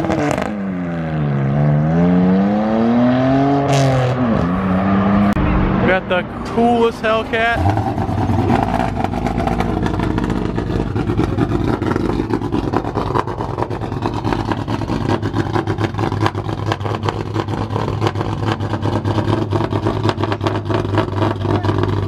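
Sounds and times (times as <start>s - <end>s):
car engine idling loudly: 5.4s - 22.0s.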